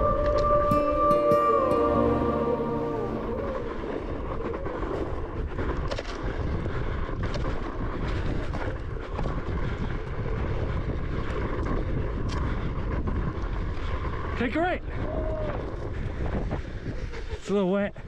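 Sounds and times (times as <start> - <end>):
wind rushing over microphone: 0.0 - 1.7, 2.6 - 18.0
wheels rolling over dirt: 3.4 - 17.6.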